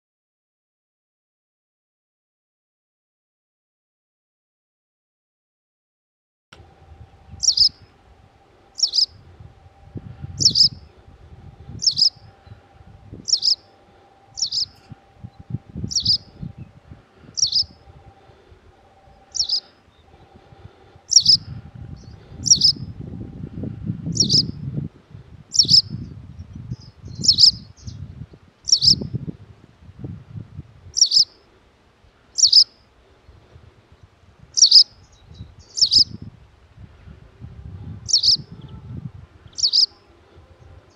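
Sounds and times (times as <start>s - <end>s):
low rumble: 6.6s - 28.4s, 36.2s - 40.9s
bird giving sharp calls: 7.4s - 7.9s, 8.7s - 9.2s, 10.4s - 10.8s, 11.8s - 12.3s, 13.2s - 15.1s, 15.9s - 16.3s, 17.3s - 17.9s, 19.0s - 20.2s, 21.1s - 21.5s, 22.4s - 22.8s, 31.0s - 31.4s, 32.4s - 32.7s, 34.6s - 34.9s, 38.1s - 38.4s, 39.6s - 40.0s.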